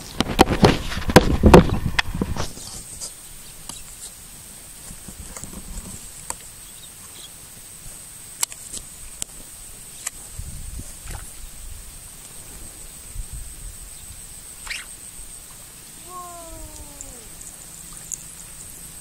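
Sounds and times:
faint steady high tone: 16.0s - 18.1s
faint clicks: 16.4s - 18.4s.

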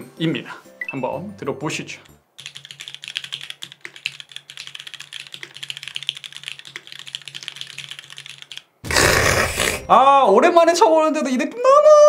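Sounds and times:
mechanical keyboard typing: 2.4s - 8.7s.

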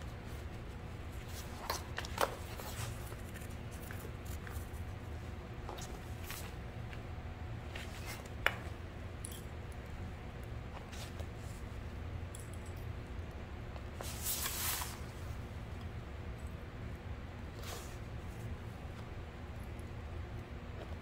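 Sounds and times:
steady low hum: 0.0s - 21.0s
fabric rustling: 14.0s - 15.1s.

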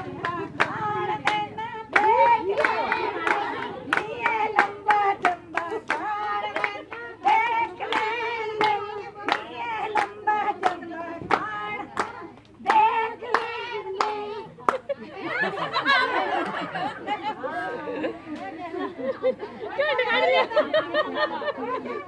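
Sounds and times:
hands clapping in time: 0.0s - 14.8s
women singing folk song: 0.0s - 15.8s.

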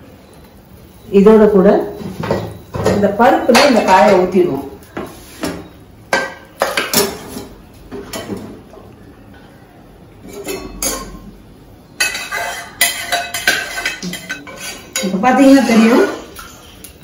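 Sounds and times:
metal pots knocking and clinking: 2.0s - 4.6s, 5.4s - 8.6s, 10.2s - 11.4s, 12.0s - 16.2s
ladle scraping metal: 12.0s - 16.2s.

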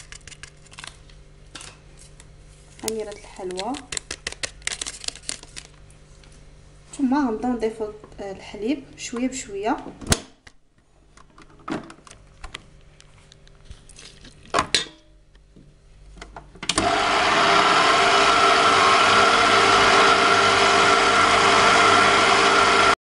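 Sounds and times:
stand mixer motor running: 16.8s - 23.0s.

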